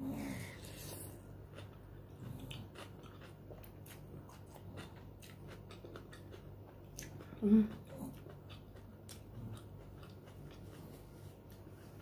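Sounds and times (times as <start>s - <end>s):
close-up chewing: 0.3s - 12.0s.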